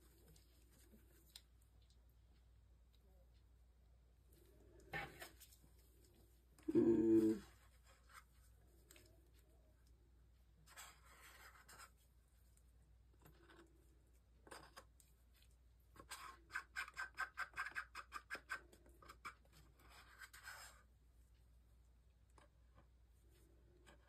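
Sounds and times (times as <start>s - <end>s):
wooden stick scraping paper cup: 10.7s - 12.0s, 15.9s - 20.9s.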